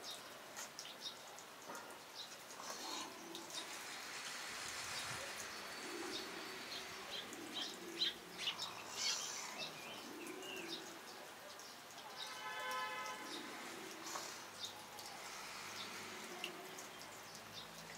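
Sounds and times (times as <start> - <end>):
faint steady hiss: 0.0 - 17.9
low cooing calls: 5.2 - 11.6, 13.3 - 16.9.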